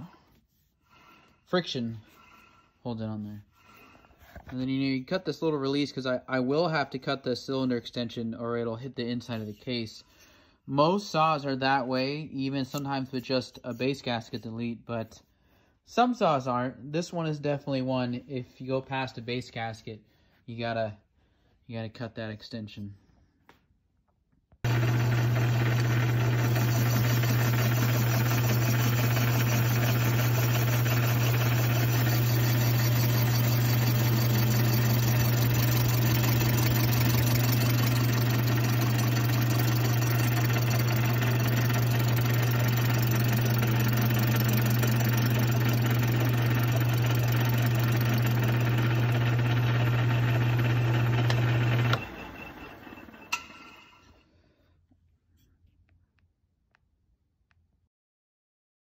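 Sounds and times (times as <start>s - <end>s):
metal lathe humming: 24.7s - 53.6s.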